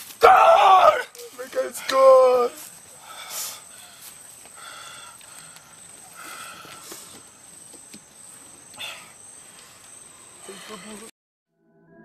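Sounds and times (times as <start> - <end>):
high-pitched insect drone: 2.0 - 11.1.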